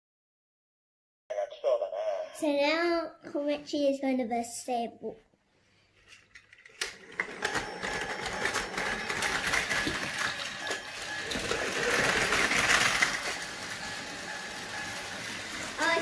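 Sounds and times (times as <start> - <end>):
toy trains whirring and clattering: 6.3 - 16.0.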